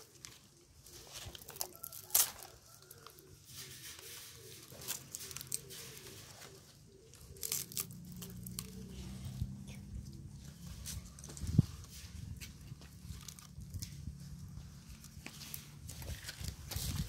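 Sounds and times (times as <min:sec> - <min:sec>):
coconut husk crackling and tearing: 0:00.0 - 0:11.5, 0:12.3 - 0:17.0
bird calling softly: 0:02.7 - 0:11.3.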